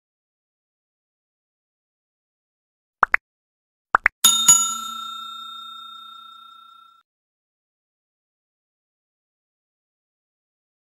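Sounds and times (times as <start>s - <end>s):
notification bell ding: 4.2s - 7.0s.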